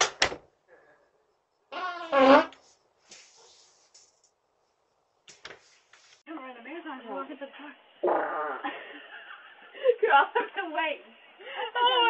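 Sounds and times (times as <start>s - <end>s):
fart: 1.7s - 2.6s, 8.0s - 8.8s.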